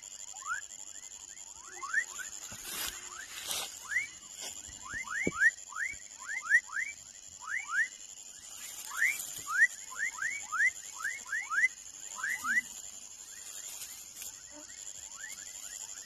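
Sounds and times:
frog chirping: 4.8 - 16.0.

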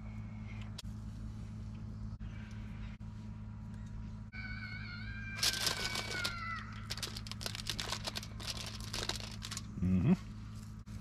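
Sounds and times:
low hum: 0.0 - 11.0
man humming: 9.8 - 10.3.

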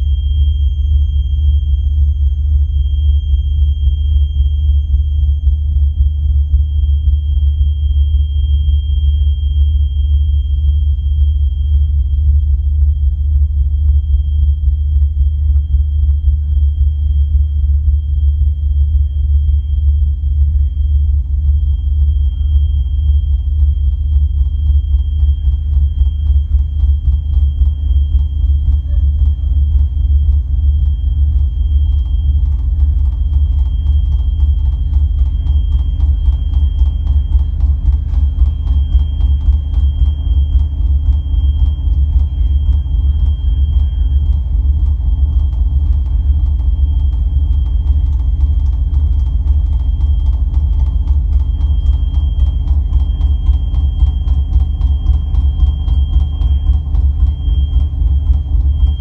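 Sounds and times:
ambient electronic music: 0.0 - 59.0.

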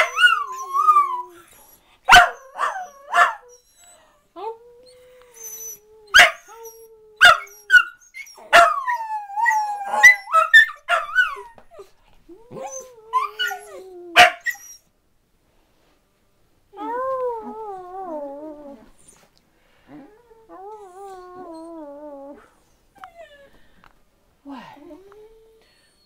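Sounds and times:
dog barks: 2.1 - 3.4, 6.2 - 6.4, 8.5 - 8.8, 14.2 - 14.5.

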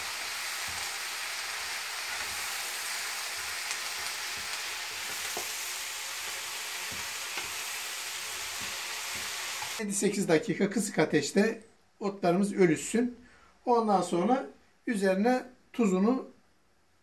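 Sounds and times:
leaves sizzling in oil: 0.0 - 9.8
wooden spatula knocking and scraping: 3.3 - 5.6, 6.8 - 7.7, 8.4 - 9.8.

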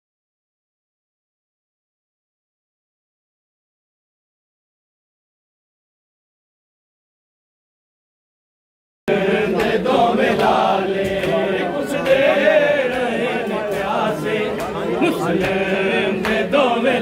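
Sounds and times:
crowd of men chanting: 9.1 - 17.0.

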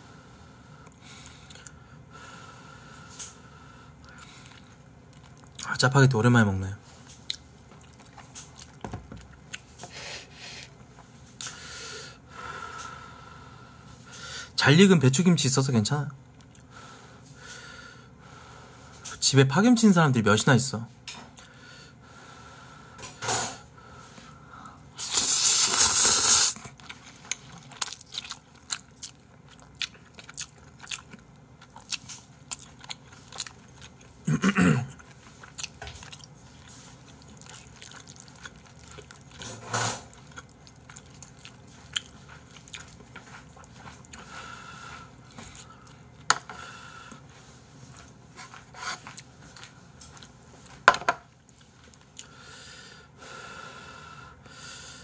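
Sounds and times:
wet chewing and smacking: 4.0 - 5.7, 7.1 - 9.8, 26.6 - 34.2, 34.9 - 44.3
slurping noodles: 25.0 - 26.7.

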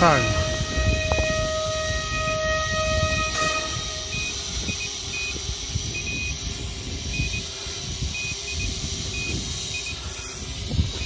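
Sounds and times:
steady high tone: 0.0 - 7.5
wind rumbling on microphone: 0.0 - 11.0.

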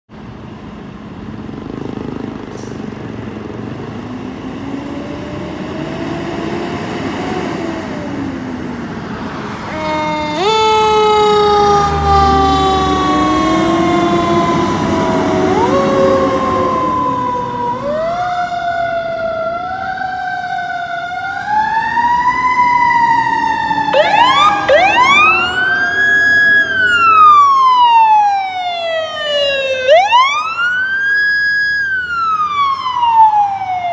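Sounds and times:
faint siren wailing slowly: 4.4 - 33.9
loud siren wailing and yelping: 9.5 - 33.9.

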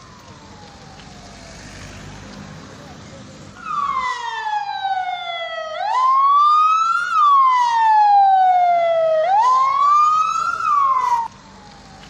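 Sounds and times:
siren wailing: 0.0 - 2.7, 3.6 - 12.0.

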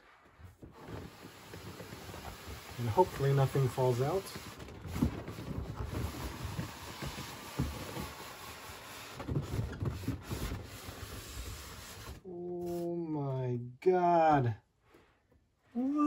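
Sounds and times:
cardboard scraping and rubbing: 0.0 - 12.8
soft knocks and bumps: 0.3 - 11.4.

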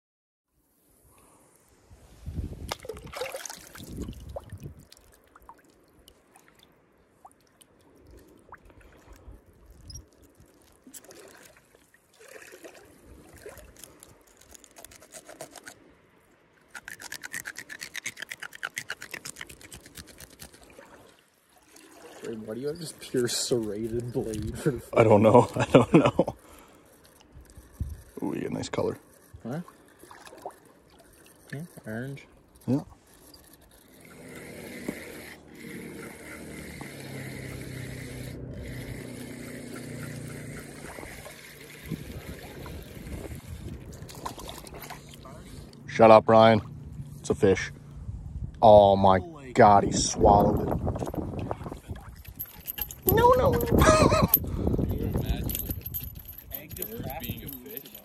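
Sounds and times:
serrated knife sawing fish: 13.7 - 15.9, 16.7 - 20.7, 22.3 - 30.0, 32.7 - 45.8.

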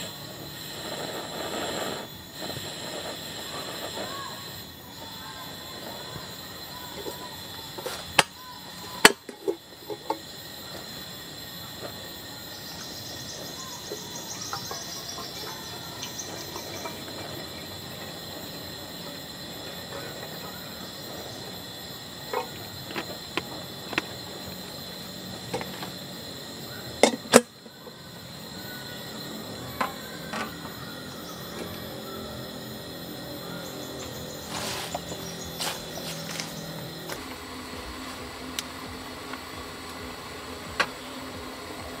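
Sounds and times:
insect buzzing: 0.0 - 42.0
metal kettle clanking: 26.9 - 27.6.

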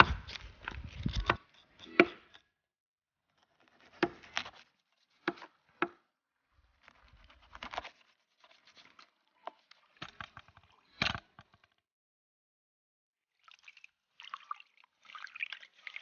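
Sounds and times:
knife scraping: 0.0 - 2.4.

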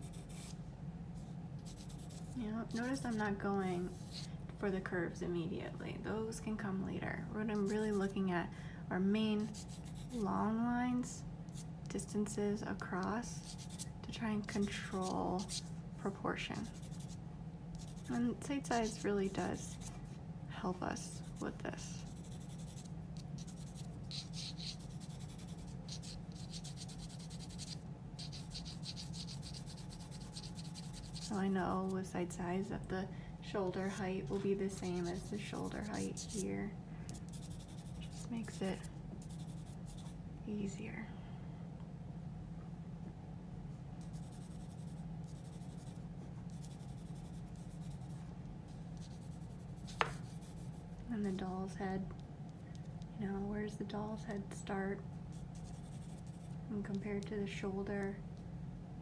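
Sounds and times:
pencil scratching on paper: 0.0 - 0.5, 1.6 - 3.3, 9.4 - 10.2, 13.4 - 13.8, 14.4 - 15.7, 16.6 - 17.2, 17.8 - 20.0, 22.0 - 31.8, 34.4 - 36.4, 37.2 - 40.1, 44.0 - 48.2, 49.0 - 50.8, 55.3 - 56.5
steady low hum: 0.0 - 59.0.

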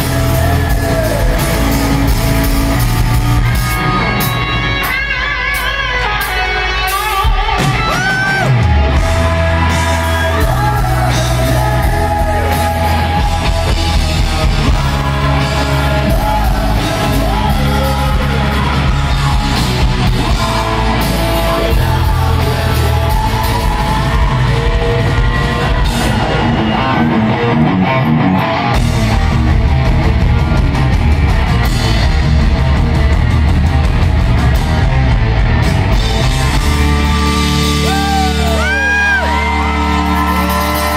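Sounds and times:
sung and shouted vocals: 0.0 - 2.2, 7.7 - 27.2
heavy rock band playing live: 0.0 - 40.9.

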